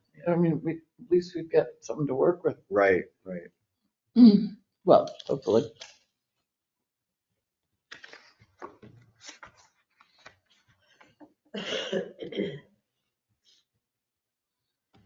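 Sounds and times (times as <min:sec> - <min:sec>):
faint clicks and rustles: 0:07.9 - 0:11.3
person coughing: 0:11.6 - 0:12.6.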